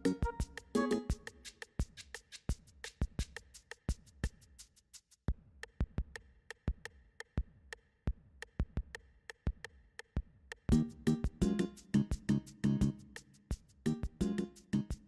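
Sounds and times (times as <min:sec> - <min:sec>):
soft held tones: 0:00.0 - 0:01.1
music: 0:00.0 - 0:15.0.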